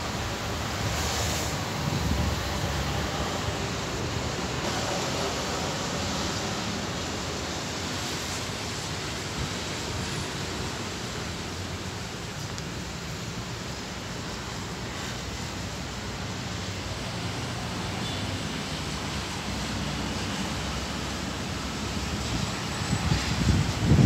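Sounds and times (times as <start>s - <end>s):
wind on microphone: 1.5s - 2.7s, 22.0s - 24.0s.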